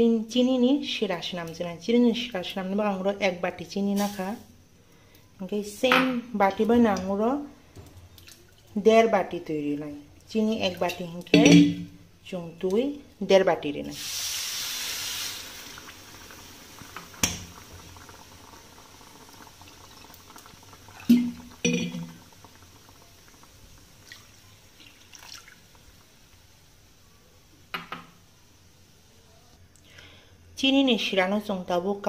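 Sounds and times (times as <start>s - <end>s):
water pouring onto sugar: 22.2s - 26.0s.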